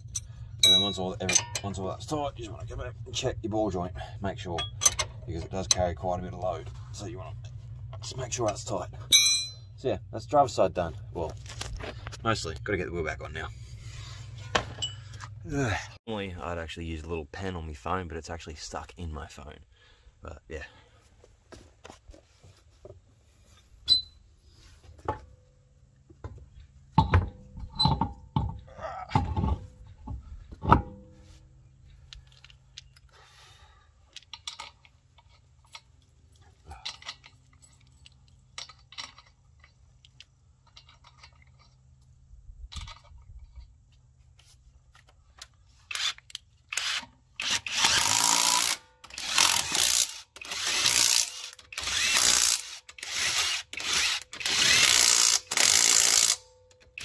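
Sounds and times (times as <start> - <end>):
metal knocks and clanks: 26.2 - 31.2
impact wrench bursts: 45.9 - 57.0.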